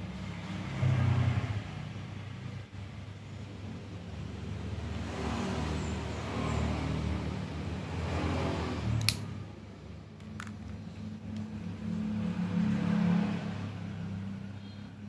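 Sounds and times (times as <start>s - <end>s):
low engine-like hum: 0.0s - 15.0s
sharp clicks: 9.0s - 9.3s.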